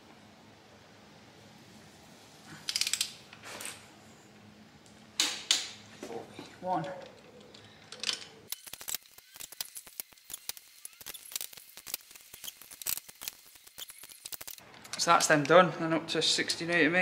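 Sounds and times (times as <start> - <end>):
torque wrench ratchet clicking: 8.5 - 14.6.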